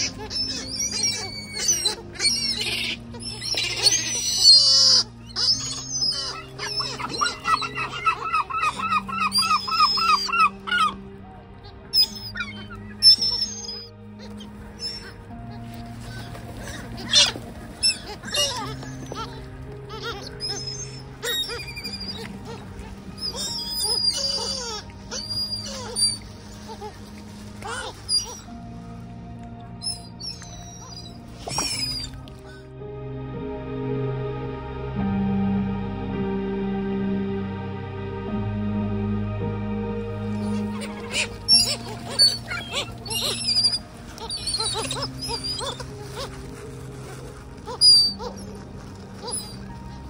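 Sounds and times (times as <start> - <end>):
harsh squeals: 0.0 - 27.0, 40.4 - 46.9, 47.6 - 49.9
gulls and crows calling: 0.0 - 32.8, 39.8 - 50.0
soft background music: 0.0 - 50.0.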